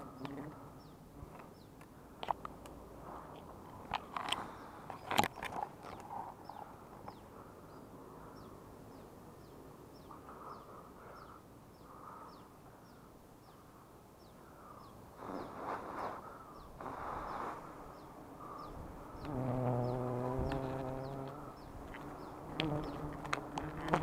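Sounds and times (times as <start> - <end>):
bird chirping: 4.4 - 24.0
leaves and branches rustling: 15.1 - 24.0.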